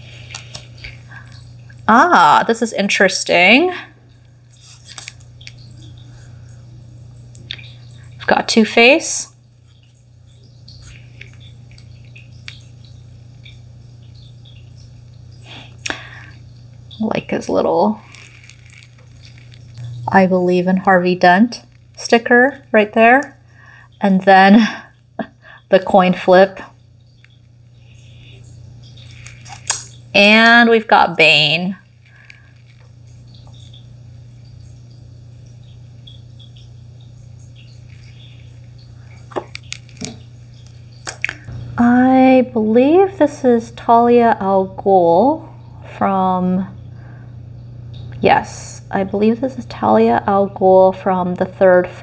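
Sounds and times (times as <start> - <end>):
steady low hum: 0.0 - 52.0
playing cards clicking: 29.1 - 30.0.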